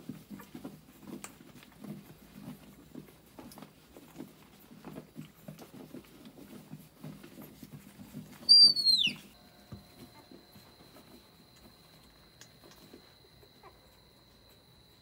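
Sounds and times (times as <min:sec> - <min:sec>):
small animals rustling: 0:00.0 - 0:15.0
high-pitched animal squeal: 0:08.5 - 0:09.3.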